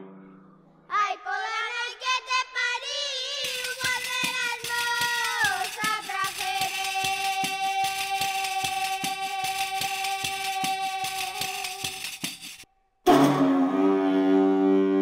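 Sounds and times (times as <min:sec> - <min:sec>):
woman singing: 0:00.9 - 0:12.3
ticking percussion: 0:03.4 - 0:13.4.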